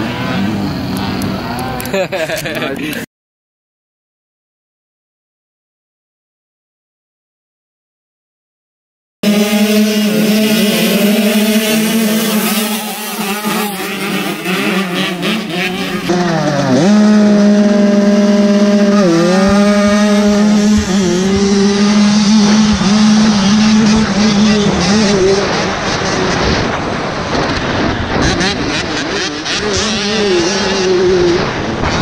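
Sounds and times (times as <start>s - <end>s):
motocross bikes revving: 0.0s - 3.0s, 9.2s - 32.0s
two-stroke engine at high revs: 9.2s - 32.0s.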